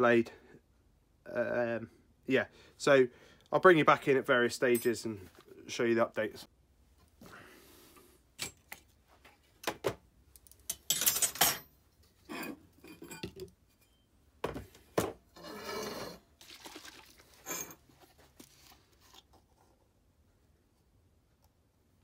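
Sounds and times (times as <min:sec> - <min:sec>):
metal clinking on steel bench: 0:10.7 - 0:11.7, 0:12.3 - 0:14.0
metal sliding on bench: 0:12.2 - 0:13.2, 0:15.3 - 0:16.2.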